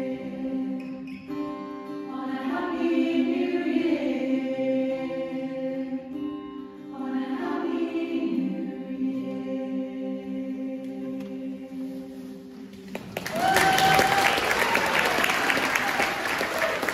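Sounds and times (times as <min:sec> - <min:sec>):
choir singing in harmony: 0:00.0 - 0:01.1, 0:02.1 - 0:12.8
acoustic guitar: 0:00.0 - 0:13.2.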